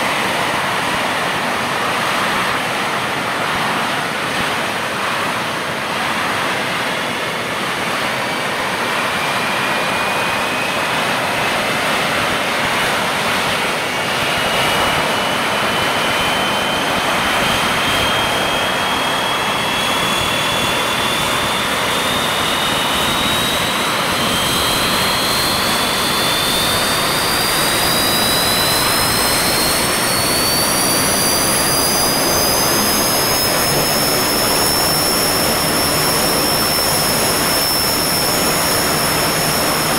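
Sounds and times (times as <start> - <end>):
rising turbine whine: 0.0 - 39.9
turboprop engine starting up: 0.0 - 39.9.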